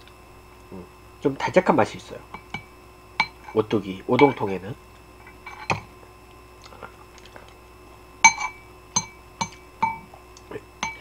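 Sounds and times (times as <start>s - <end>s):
metal fork clinking against bowl: 2.3s - 3.6s, 5.4s - 5.8s, 8.2s - 10.1s, 10.8s - 11.0s.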